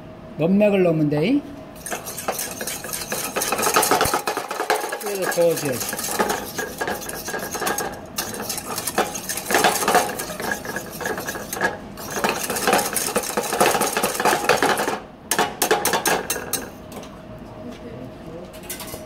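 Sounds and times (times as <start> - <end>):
wire whisk clinking in saucepan: 1.8 - 16.8.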